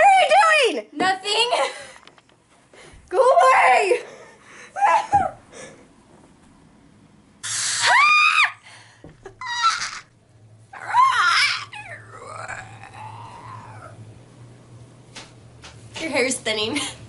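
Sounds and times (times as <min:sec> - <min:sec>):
young women screaming: 0:04.8 - 0:05.4, 0:07.4 - 0:08.6, 0:09.4 - 0:10.1, 0:10.8 - 0:14.0.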